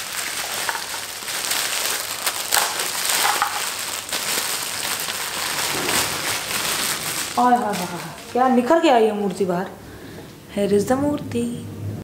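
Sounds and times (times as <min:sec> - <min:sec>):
plastic wrapping crinkling: 0:00.0 - 0:09.4.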